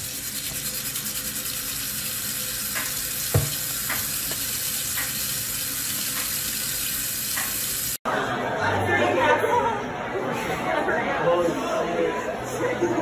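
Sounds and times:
faucet running into metal sink: 0.0s - 8.0s.

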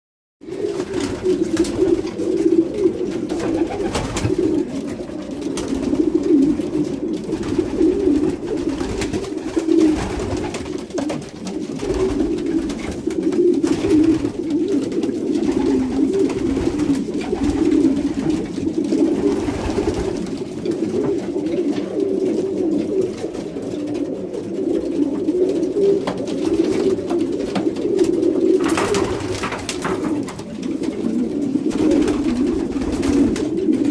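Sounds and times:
pigeons cooing: 0.4s - 33.9s
wings flapping: 0.5s - 24.1s, 25.3s - 33.9s.

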